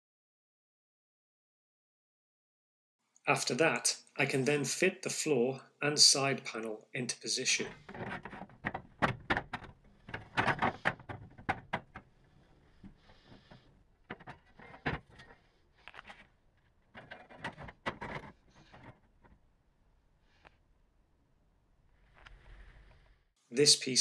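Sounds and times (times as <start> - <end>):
steel panels knocking and scraping: 7.8 - 19.5.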